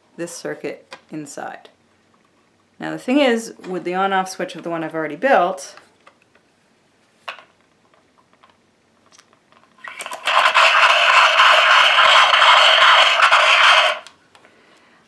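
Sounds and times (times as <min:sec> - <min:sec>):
small electric motor buzzing: 0:09.8 - 0:14.1.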